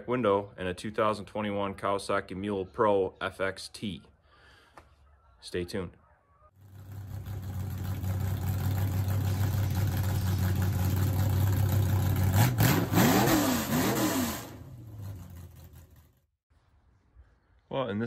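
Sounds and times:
deep engine drone: 6.6s - 16.2s
engine revving: 6.6s - 16.3s.

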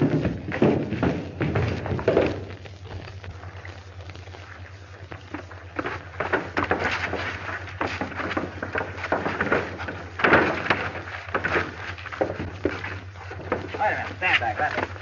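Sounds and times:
low film soundtrack hum: 0.0s - 15.0s
sharp bangs and knocks: 5.8s - 15.0s.

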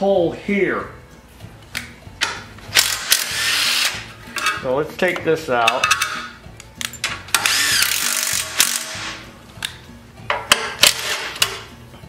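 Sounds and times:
impact driver whining: 7.3s - 9.2s.

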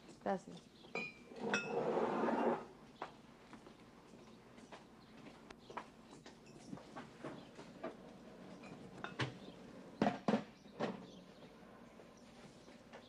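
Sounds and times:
crockery and cupboard knocks: 10.0s - 11.0s.

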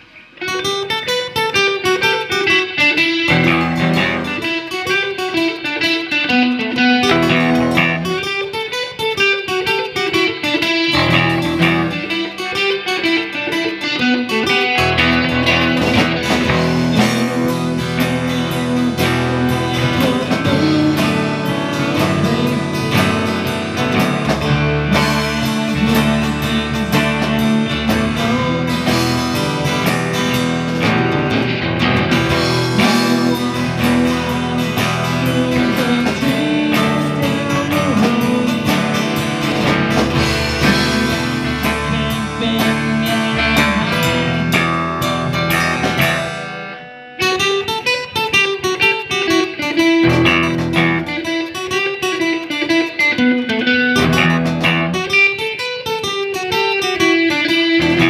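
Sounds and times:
live rock band playing: 0.0s - 58.0s.

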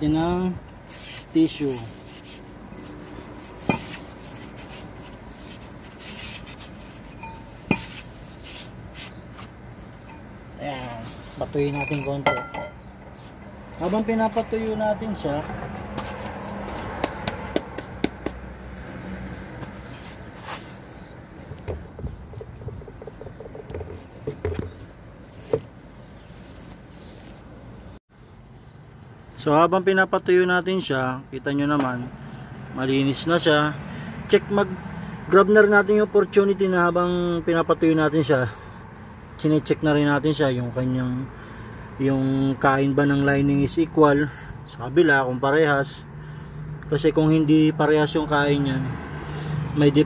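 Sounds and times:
tissue rubbing on metal: 0.8s - 11.5s, 19.2s - 21.1s.

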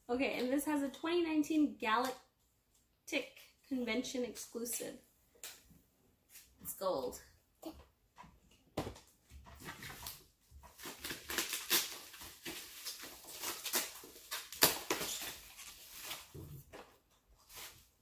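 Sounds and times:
plastic packing material rustling: 9.6s - 16.8s.

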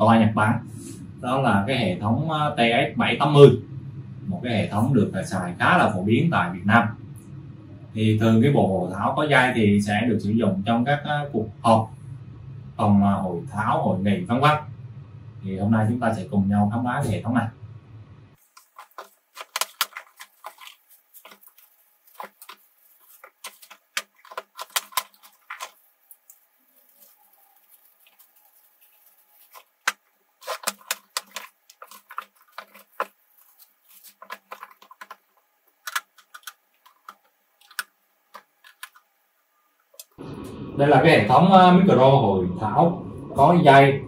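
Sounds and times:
plastic wrapping rustling: 18.4s - 39.1s
hard plastic parts clicking: 18.6s - 21.4s, 22.2s - 25.8s, 29.8s - 33.2s, 34.0s - 39.1s.

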